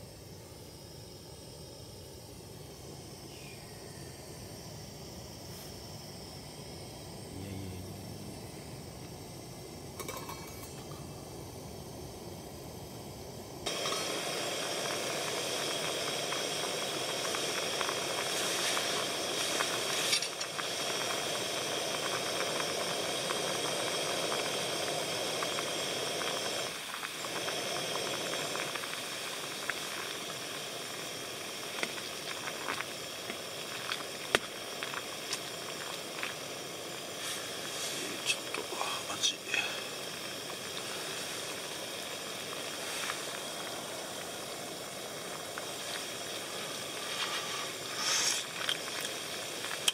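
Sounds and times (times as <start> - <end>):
gas stove burner hiss: 0.0 - 49.9.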